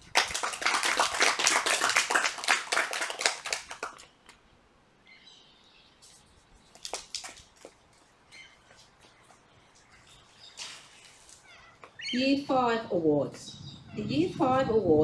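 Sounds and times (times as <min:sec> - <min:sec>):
audience clapping: 0:00.0 - 0:04.1
faint bird chirps: 0:05.0 - 0:06.8, 0:08.3 - 0:12.3, 0:13.4 - 0:14.4.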